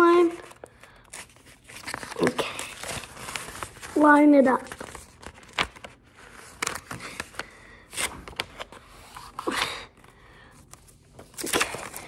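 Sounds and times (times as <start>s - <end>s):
paper rustling on wooden floor: 0.0s - 9.5s, 10.7s - 12.0s.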